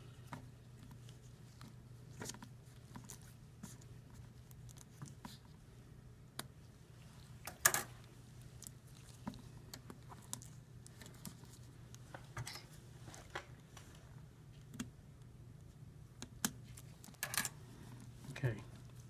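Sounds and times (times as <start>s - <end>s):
low steady hum: 0.0s - 19.0s
small clicks and scrapes: 0.3s - 5.6s, 7.4s - 14.0s.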